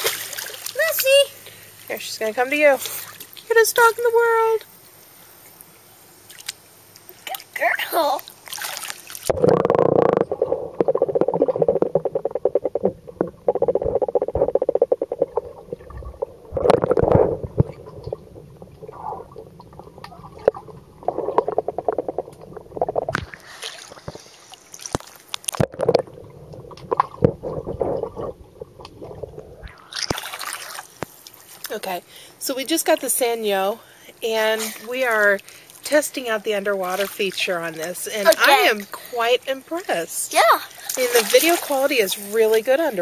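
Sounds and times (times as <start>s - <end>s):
water gurgling underwater: 9.2s - 24.4s, 25.5s - 31.2s.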